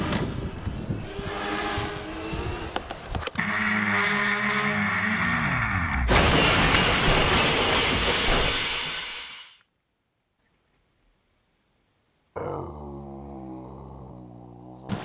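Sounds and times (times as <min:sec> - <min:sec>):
quadcopter motors whining: 0:02.1 - 0:06.0.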